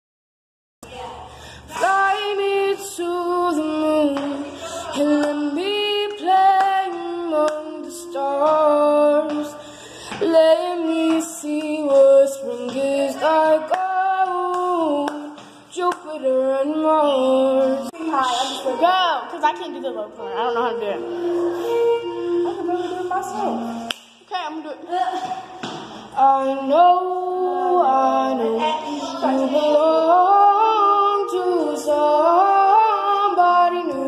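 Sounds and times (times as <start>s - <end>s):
singer breathing: 1.2s - 1.8s, 4.4s - 5.0s, 9.6s - 10.2s
woman singing slow melody: 1.6s - 18.1s, 21.0s - 23.9s, 26.1s - 34.0s.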